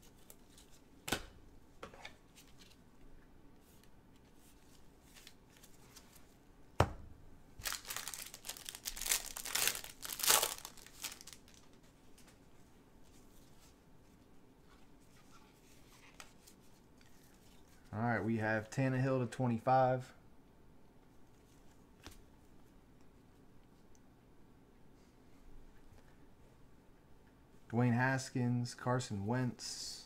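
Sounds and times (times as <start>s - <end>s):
pack crinkling and tearing: 7.6s - 11.8s.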